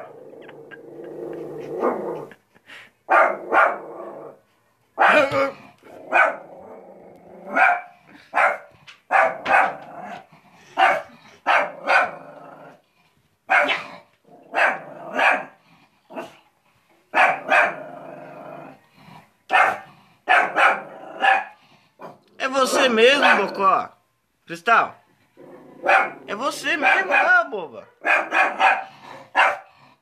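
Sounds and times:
dog growling: 0:00.0 - 0:02.6, 0:03.3 - 0:04.4, 0:05.1 - 0:08.2, 0:09.7 - 0:16.4, 0:17.4 - 0:22.4, 0:25.4 - 0:26.3
small dog barking: 0:03.1 - 0:03.8, 0:05.0 - 0:05.4, 0:06.1 - 0:06.4, 0:07.5 - 0:09.9, 0:10.8 - 0:12.2, 0:13.5 - 0:13.9, 0:14.5 - 0:15.5, 0:17.1 - 0:17.8, 0:19.5 - 0:22.2, 0:22.8 - 0:23.6, 0:25.8 - 0:29.7.

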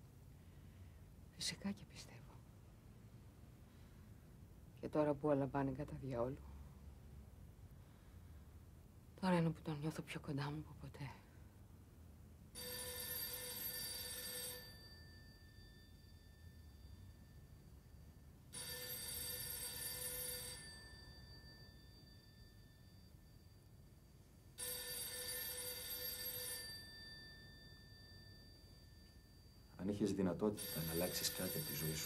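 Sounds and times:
telephone ringing: 0:12.5 - 0:17.8, 0:18.4 - 0:32.0.

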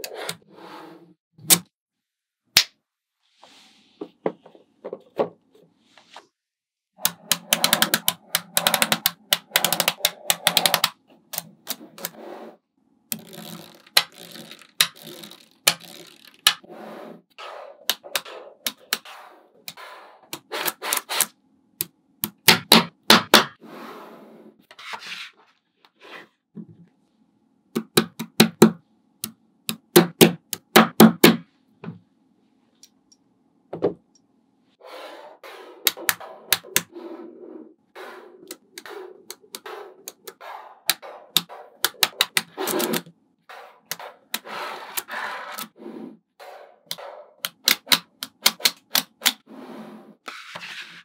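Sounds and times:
magnetic balls clicking together: 0:07.0 - 0:12.2, 0:13.1 - 0:16.6
magnetic balls rattling: 0:13.2 - 0:16.6.

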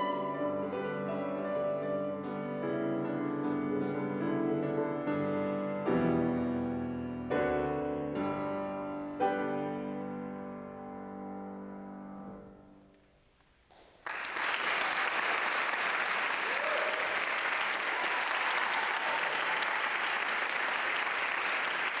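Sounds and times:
piano chord: 0:00.0 - 0:12.8
audience applauding: 0:13.7 - 0:22.0.

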